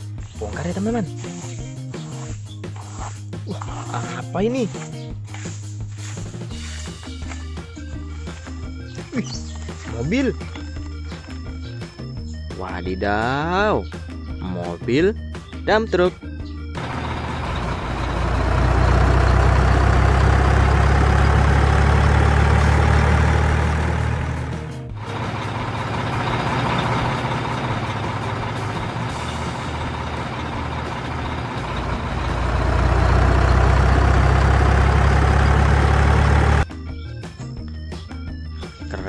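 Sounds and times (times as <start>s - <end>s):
heavy truck engines rumbling: 16.8s - 36.7s.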